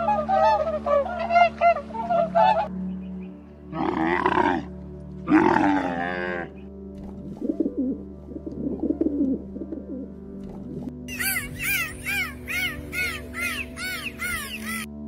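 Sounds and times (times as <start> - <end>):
background music: 0.0 - 15.0
camel calling: 3.7 - 6.6, 11.1 - 15.0
pigeons cooing: 5.3 - 15.0.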